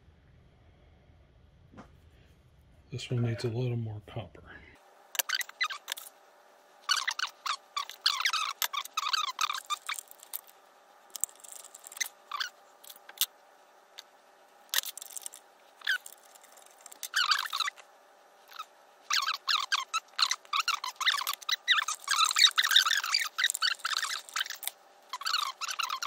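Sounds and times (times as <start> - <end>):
wire strippers squeaking: 5.1 - 6.1, 6.8 - 10.5, 11.1 - 13.3, 14.7 - 26.0.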